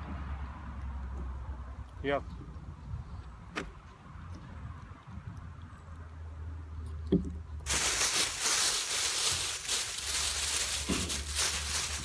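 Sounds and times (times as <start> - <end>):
plastic bag rustling: 7.6 - 12.0.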